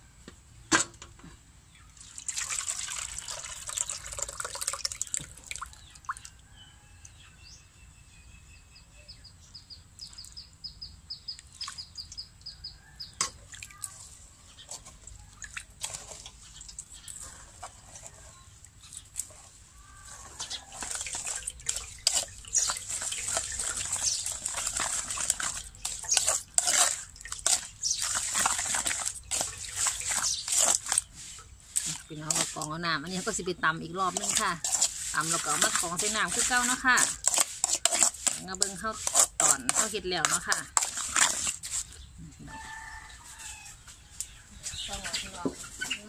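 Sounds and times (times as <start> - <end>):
liquid trickling through strainer: 2.0 - 6.4, 14.7 - 42.0
bird chirping: 5.7 - 13.2, 21.9 - 24.4, 29.9 - 30.6
metal ladle scraping strainer: 15.7 - 42.0.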